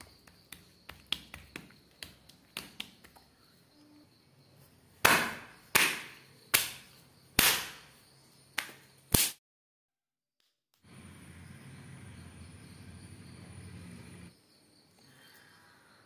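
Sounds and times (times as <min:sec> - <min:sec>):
dough slapped on stone countertop: 0:00.0 - 0:03.2, 0:05.0 - 0:07.9, 0:08.6 - 0:09.4.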